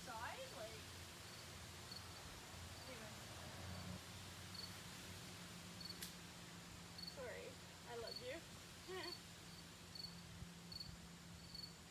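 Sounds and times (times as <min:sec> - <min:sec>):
cricket chirping: 0:04.5 - 0:04.8, 0:05.8 - 0:06.0, 0:07.0 - 0:07.2, 0:08.9 - 0:11.8.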